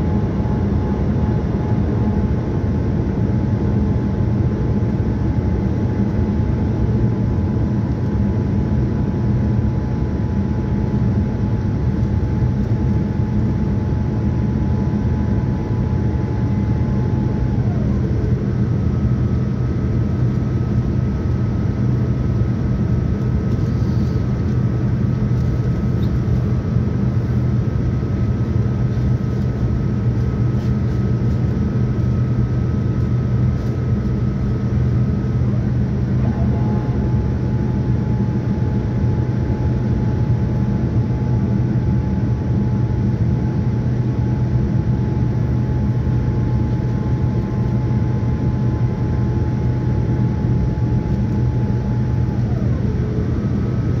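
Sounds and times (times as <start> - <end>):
aircraft engine and airflow roar: 0.0 - 54.0
higher engine whine: 11.8 - 54.0
low hum: 11.9 - 54.0
thin engine whine: 12.6 - 20.8, 34.6 - 42.9, 43.9 - 54.0.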